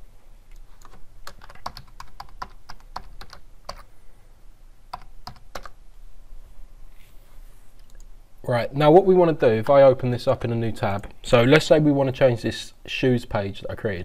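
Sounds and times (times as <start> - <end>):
typing on computer keyboard: 0.8 - 3.9, 4.9 - 5.8.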